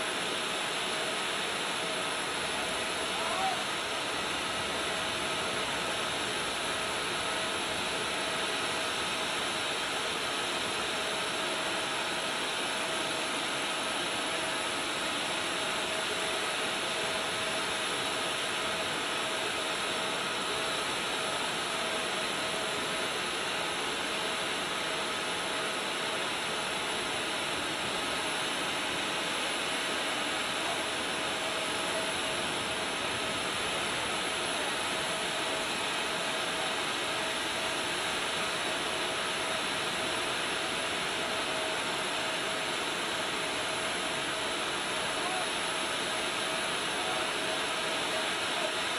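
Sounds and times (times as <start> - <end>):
turbine running: 14.8 - 48.9.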